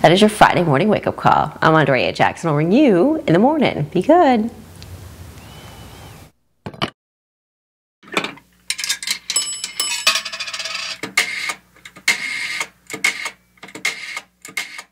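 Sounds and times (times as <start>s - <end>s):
rapid mechanical clicks and clatter: 10.1s - 14.9s.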